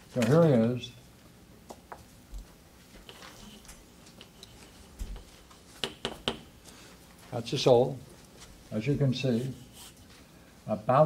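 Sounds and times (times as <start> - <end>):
marker tapping on a board: 5.1 - 6.5.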